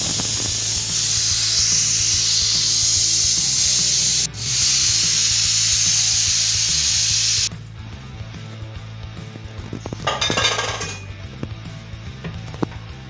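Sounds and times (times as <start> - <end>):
pressure cooker steam hissing: 0.0 - 7.5.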